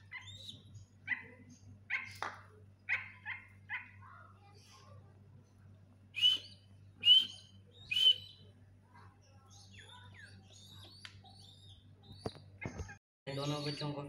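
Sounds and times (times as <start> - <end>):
chicks chirping: 0.0 - 2.3, 6.2 - 14.0.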